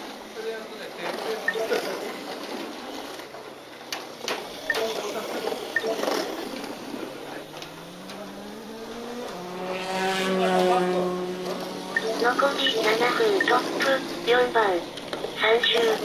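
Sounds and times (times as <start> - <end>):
tiny electric motors whirring: 4.2 - 16.0.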